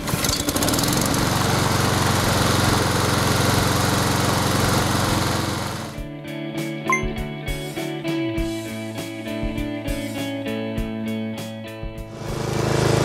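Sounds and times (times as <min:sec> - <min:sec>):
lawnmower engine running: 0:00.0 - 0:06.0, 0:12.1 - 0:13.0.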